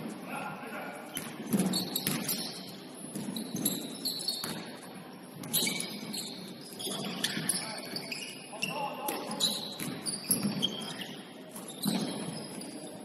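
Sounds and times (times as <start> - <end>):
shoes squeaking on court: 1.0 - 13.0
ball bouncing: 1.1 - 2.5, 9.1 - 10.8.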